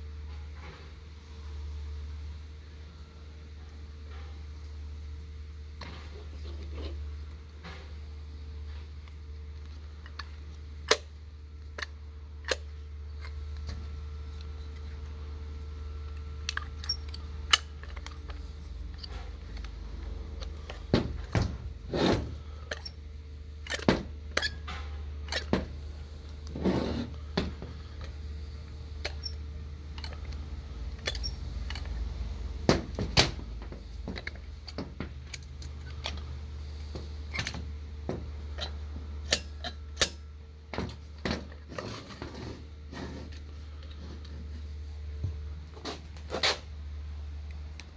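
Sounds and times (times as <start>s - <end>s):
steady low hum: 0.0s - 47.9s
metal clicks and clunks: 23.6s - 25.7s.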